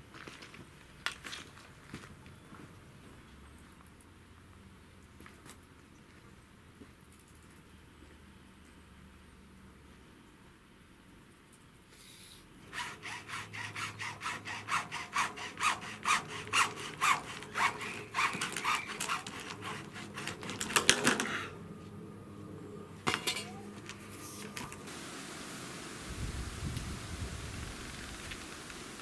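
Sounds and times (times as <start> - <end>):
hacksaw cutting plastic pipe: 12.6 - 21.5.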